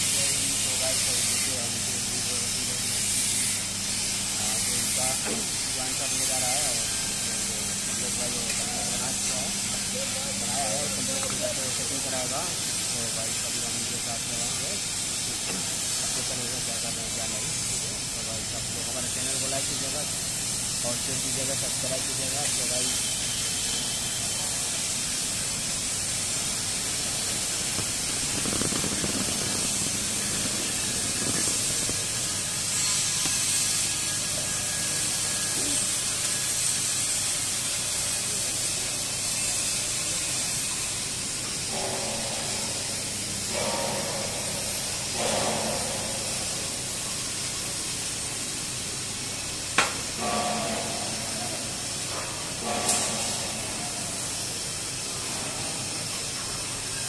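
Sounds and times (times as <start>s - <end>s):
steady workshop hiss: 0.0s - 57.0s
indistinct voices: 26.5s - 33.2s.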